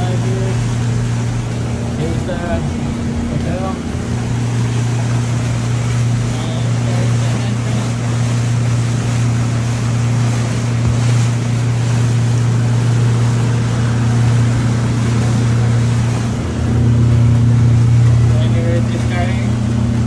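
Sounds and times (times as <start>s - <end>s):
motorboat engine running: 0.0s - 20.0s
water rushing around hull: 0.0s - 20.0s.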